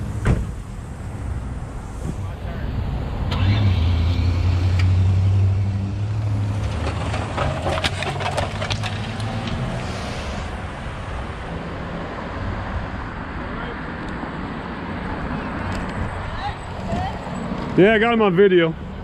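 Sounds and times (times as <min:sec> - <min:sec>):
vehicle engine humming: 0:00.0 - 0:19.0
sharp clicks and clatter: 0:06.6 - 0:09.6.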